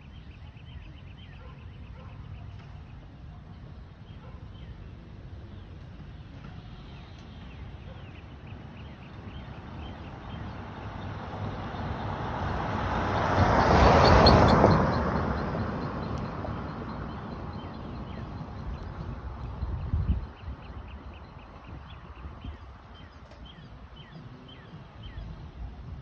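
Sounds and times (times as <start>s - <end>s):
car passing: 8.7s - 26.0s.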